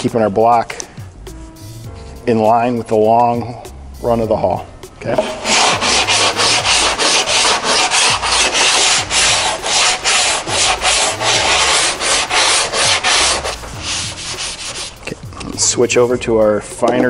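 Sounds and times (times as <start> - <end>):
sandpaper rasping on filler: 5.2 - 15.3.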